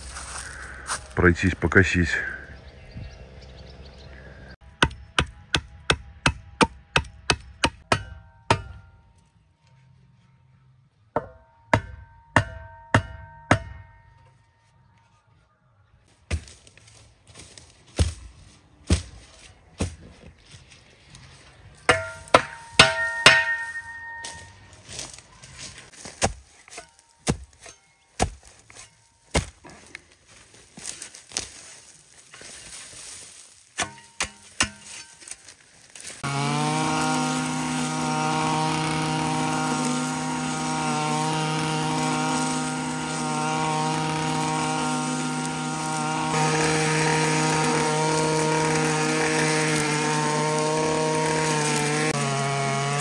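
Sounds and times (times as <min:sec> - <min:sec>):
shovel chopping into roots: 0:16.3 - 0:20.1, 0:25.9 - 0:30.1, 0:33.6 - 0:53.0
metallic ring of blade: 0:21.9 - 0:24.6.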